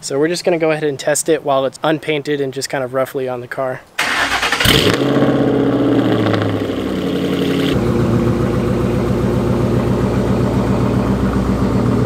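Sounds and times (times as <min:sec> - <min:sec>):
car engine idling: 0:04.0 - 0:12.0.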